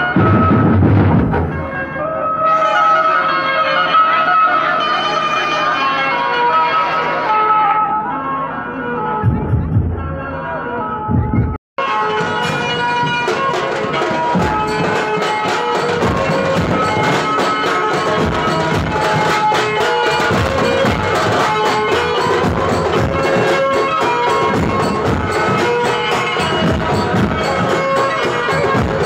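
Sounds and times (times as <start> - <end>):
rapid drumming: 0.0 - 1.7, 11.1 - 29.0
reedy melody line: 11.8 - 29.0.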